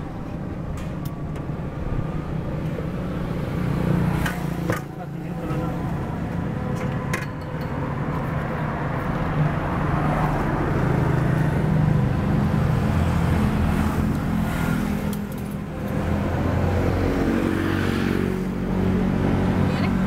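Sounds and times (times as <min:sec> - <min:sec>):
street traffic hum: 0:00.0 - 0:20.0.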